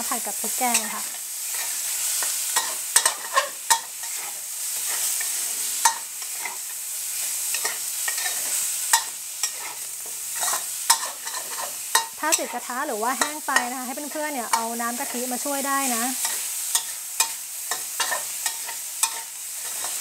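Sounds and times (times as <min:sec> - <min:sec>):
meat sizzling in a wok: 0:00.0 - 0:20.0
metal spatula scraping wok: 0:00.1 - 0:20.0
spatula clinking against pan: 0:16.2 - 0:19.9.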